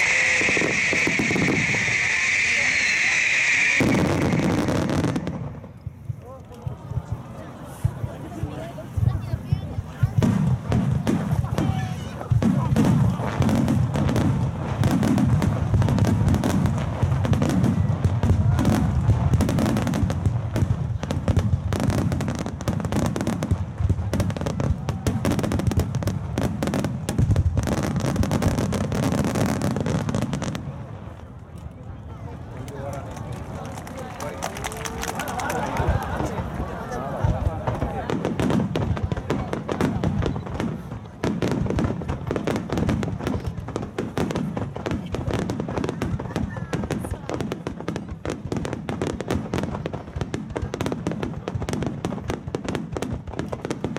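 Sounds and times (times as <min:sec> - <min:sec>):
firework shells bursting: 0:00.0 - 0:05.9.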